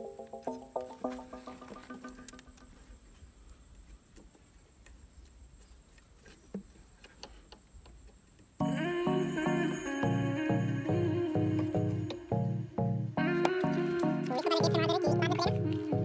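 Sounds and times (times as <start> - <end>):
background music: 0.0 - 2.7, 8.6 - 16.0.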